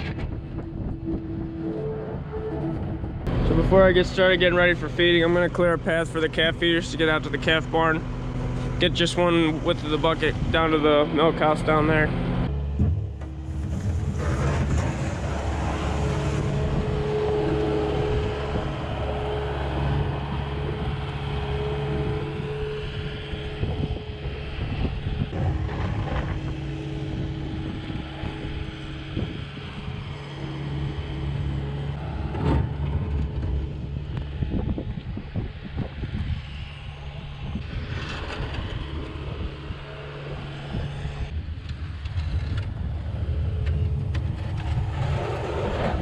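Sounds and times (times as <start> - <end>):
diesel engine running under load: 0.0 - 46.0
bucket pushing snow on pavement: 12.9 - 18.5.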